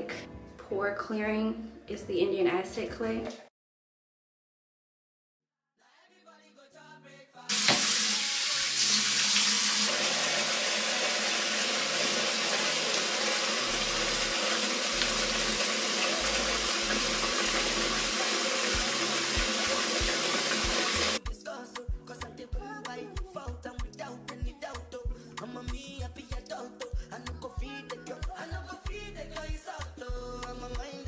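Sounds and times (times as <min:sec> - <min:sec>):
faint background music: 0:00.0 - 0:03.5
tap running into a sink: 0:07.5 - 0:08.2, 0:14.2 - 0:21.2.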